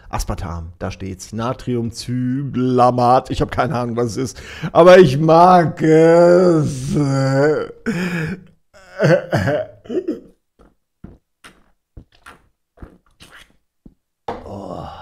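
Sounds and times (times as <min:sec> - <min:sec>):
swallowing gulps: 0:08.8 - 0:14.8.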